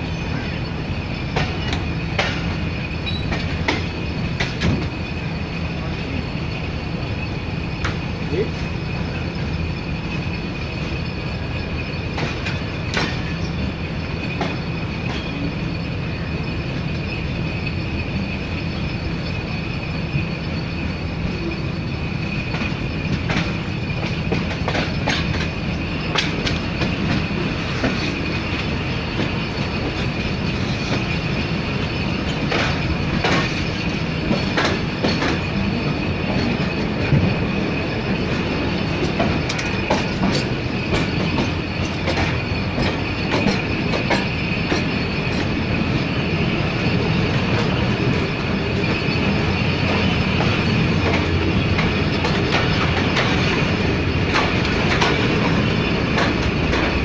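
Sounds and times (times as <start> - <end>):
train wheels rumbling on track: 0.0 - 57.0
wheels clicking over rail joints: 1.3 - 5.0, 11.6 - 15.8, 22.3 - 57.0.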